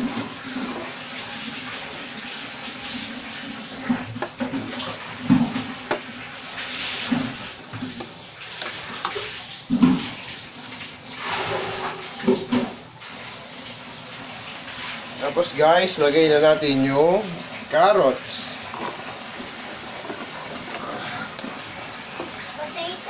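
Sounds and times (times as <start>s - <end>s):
bubbling hiss of simmering: 0.0s - 23.0s
spatula stirring in wok: 3.6s - 12.0s, 18.6s - 22.5s.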